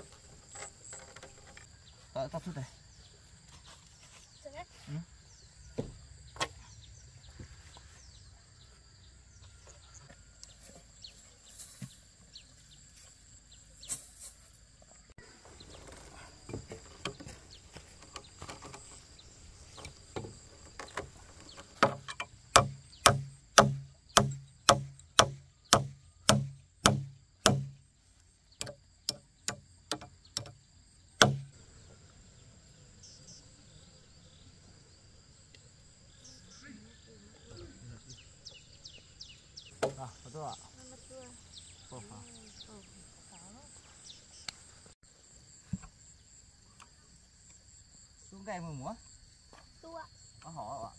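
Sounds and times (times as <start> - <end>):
high insect trill: 0.0 - 50.9
tool knocking on log: 20.1 - 27.8, 28.6 - 30.6, 31.2 - 31.5.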